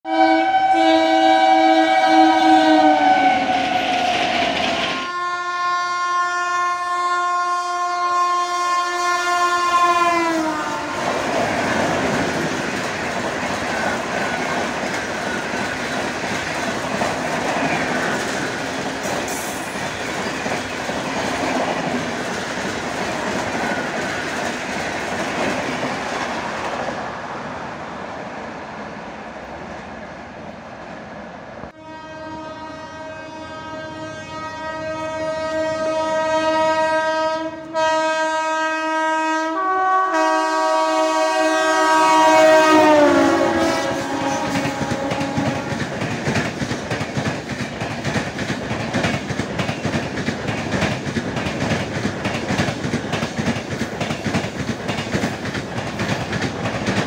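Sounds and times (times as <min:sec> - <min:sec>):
train horn blasts: 0:00.1 - 0:11.1, 0:31.7 - 0:45.8
train wheels clattering over rails: 0:11.0 - 0:27.0, 0:43.3 - 0:57.0.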